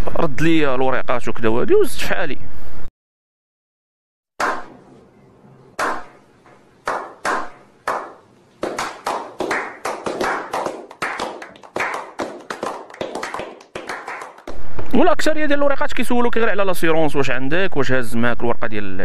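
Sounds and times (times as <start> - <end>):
group of men clapping: 6.9 - 14.5.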